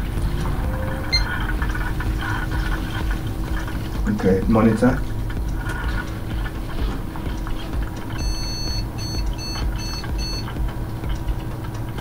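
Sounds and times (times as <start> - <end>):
computer hum: 0.0 - 12.0
motherboard beeps: 0.8 - 1.8, 8.1 - 11.2.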